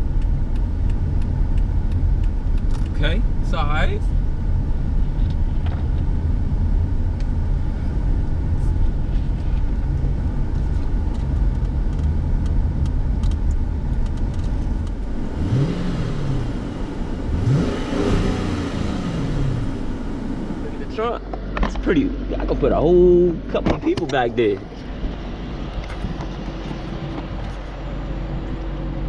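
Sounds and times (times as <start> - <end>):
car engine and road rumble: 0.0 - 29.0
engine revving: 14.4 - 21.2.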